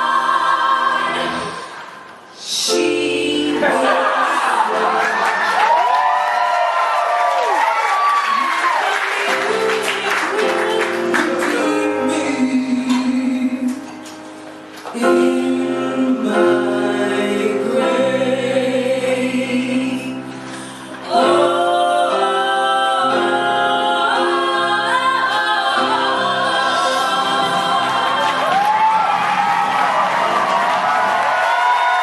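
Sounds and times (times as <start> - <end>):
women singing in harmony: 0.0 - 1.8, 2.4 - 5.2, 8.9 - 14.1, 14.9 - 29.0
woman singing lead with vibrato: 0.0 - 5.1, 8.5 - 14.1, 14.9 - 29.0.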